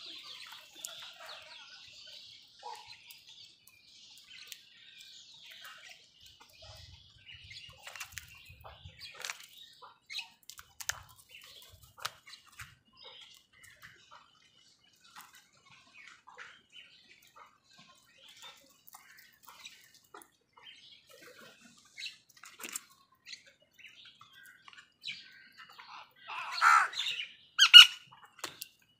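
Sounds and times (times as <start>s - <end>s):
faint clicks and soft chirps: 0.0s - 26.2s, 27.0s - 28.9s
crow cawing: 26.3s - 27.0s.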